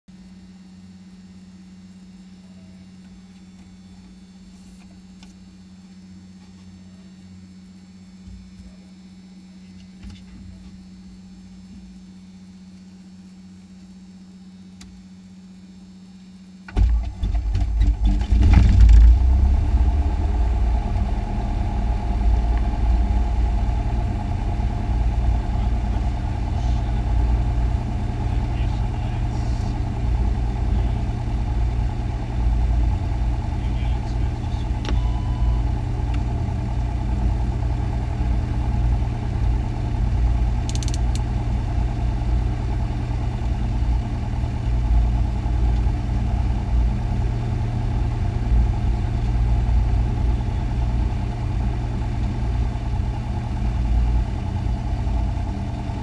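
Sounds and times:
faint hum: 0.1 - 56.0
piston engine starting and idling: 16.6 - 56.0.

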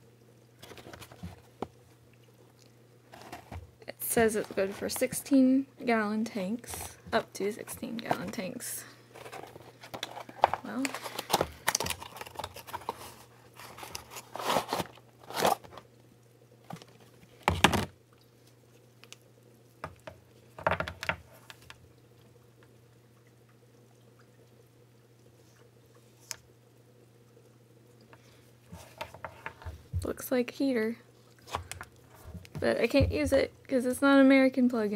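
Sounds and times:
cardboard rustling and crinkling: 0.6 - 1.8, 3.1 - 5.2, 6.7 - 15.9, 16.6 - 17.9, 28.7 - 30.1, 31.4 - 33.4.

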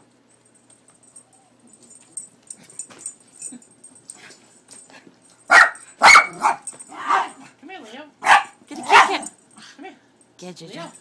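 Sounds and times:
dog barking: 5.5 - 7.4, 8.2 - 9.3.

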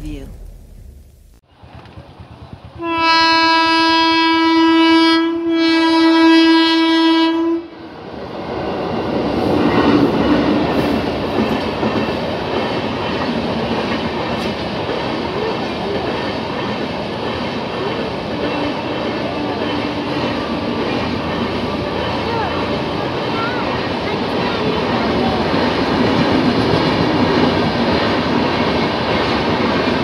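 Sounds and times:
train wheels on rails: 1.3 - 3.6, 7.9 - 30.0
train horn long blast: 2.8 - 7.8.

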